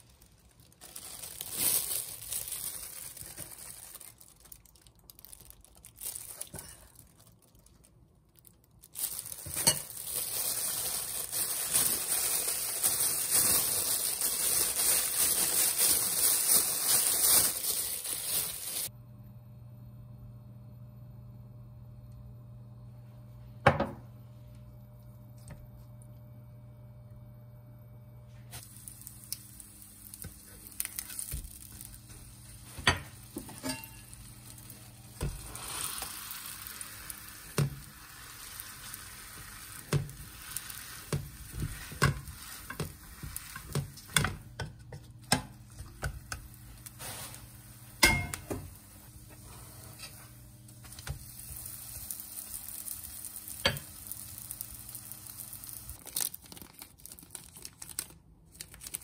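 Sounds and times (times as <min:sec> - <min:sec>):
food sizzling in a pan: 0:09.0 - 0:18.9, 0:28.5 - 0:44.6, 0:45.4 - 0:56.0.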